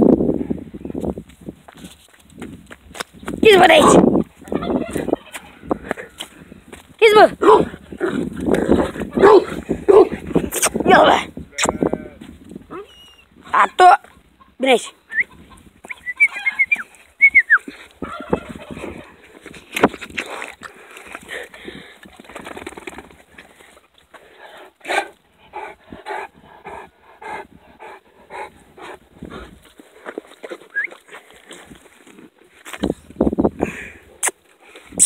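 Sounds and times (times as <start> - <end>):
dogs whimpering squeals: 12.7 - 13.3, 16.0 - 17.4.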